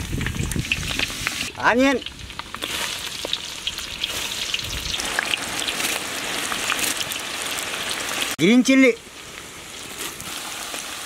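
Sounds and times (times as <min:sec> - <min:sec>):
garlic and onions sizzling in oil: 0:00.0 - 0:11.0.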